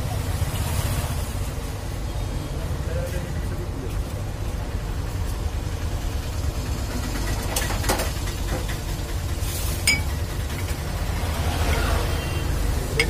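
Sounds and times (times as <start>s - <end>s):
street traffic rumble: 0.0s - 13.0s
glass tumblers clinking on steel: 9.8s - 10.3s.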